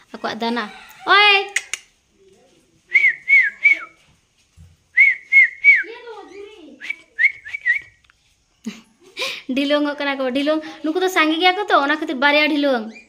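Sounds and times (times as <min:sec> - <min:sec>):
high whistled chirps: 0:04.9 - 0:08.0.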